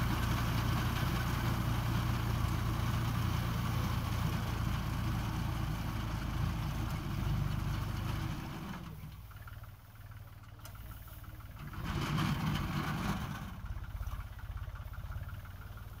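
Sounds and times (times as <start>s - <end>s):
tractor diesel engine running: 0.0s - 16.0s.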